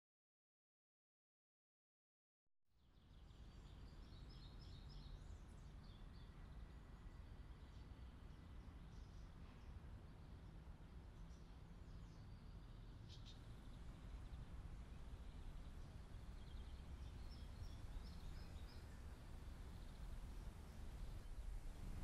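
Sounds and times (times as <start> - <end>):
distant bird chirps: 11.3 - 22.0.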